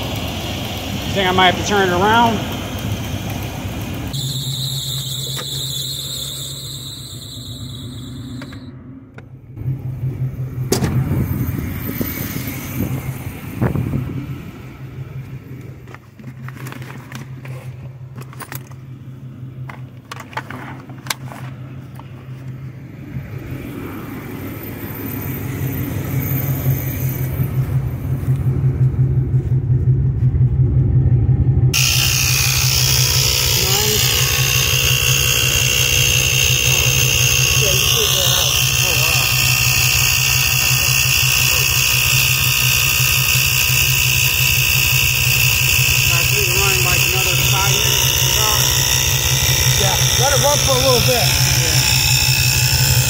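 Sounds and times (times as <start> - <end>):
car engine idling: 0.0 - 53.0.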